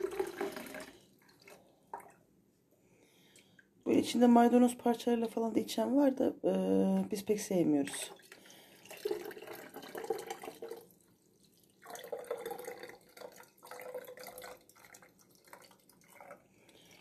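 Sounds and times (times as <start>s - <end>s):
liquid pouring into a glass bottle: 0.0s - 2.2s, 8.1s - 17.0s.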